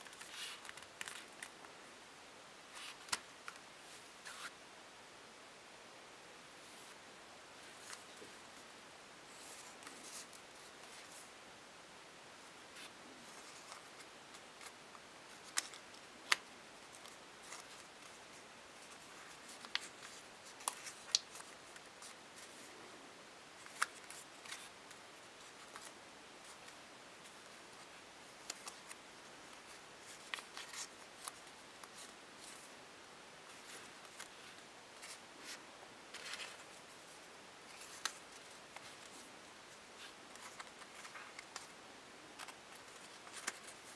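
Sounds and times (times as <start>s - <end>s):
paper rustling and crinkling: 0.0s - 1.7s, 12.8s - 22.7s, 23.6s - 32.7s, 33.5s - 39.3s, 40.0s - 41.7s, 42.4s - 43.9s.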